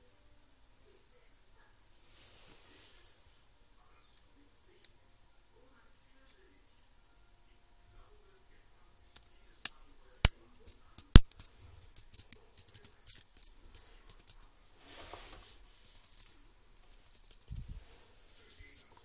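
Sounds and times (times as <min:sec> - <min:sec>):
brief rustle: 0:13.7 - 0:16.4.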